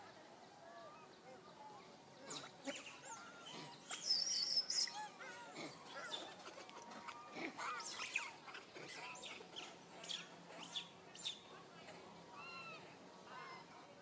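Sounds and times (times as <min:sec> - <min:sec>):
high chirping calls: 0:02.2 - 0:05.2.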